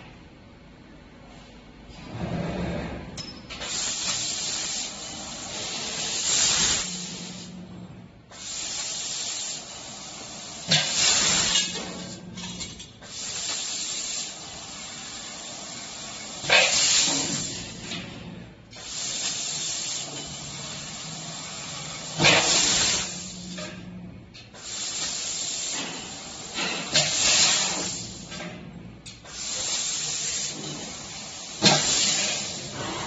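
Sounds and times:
assist gas hissing: 3.6 - 7.6, 8.3 - 12.1, 13.0 - 18.0, 18.7 - 23.7, 24.6 - 28.4, 29.2 - 33.0
low machine hum: 4.9 - 8.3.

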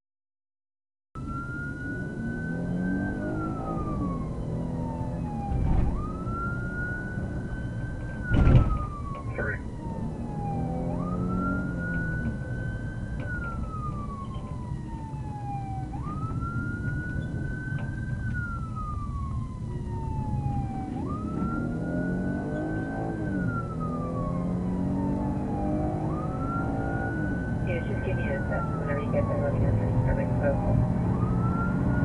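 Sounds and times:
car engine and road noise: 1.2 - 32.0
police siren wailing: 1.2 - 32.0.

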